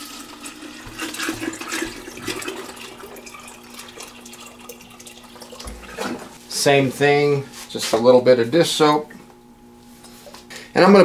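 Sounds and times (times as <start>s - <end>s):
water pouring into drum: 0.0s - 6.4s.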